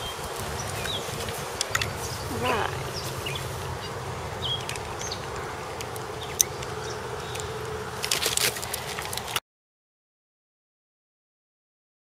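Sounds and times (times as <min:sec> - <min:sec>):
clicking and rustling: 0:00.8 - 0:02.0, 0:07.3 - 0:09.4.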